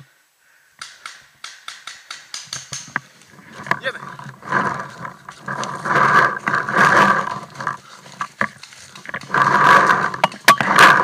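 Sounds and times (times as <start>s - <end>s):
sharp clicks: 0.8s - 3.1s
heavy breathing: 4.4s - 11.0s.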